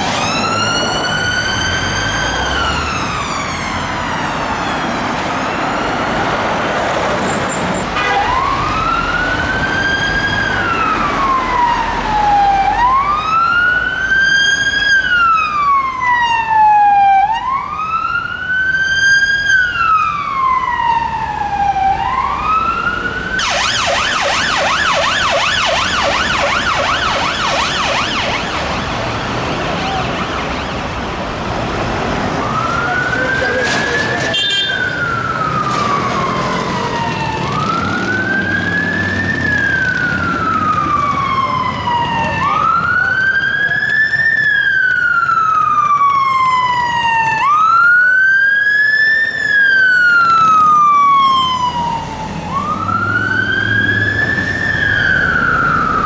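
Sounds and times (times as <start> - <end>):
ambulance siren: 0.0 - 56.0
police siren slow wail: 0.0 - 56.0
siren fast yelp: 23.4 - 28.9.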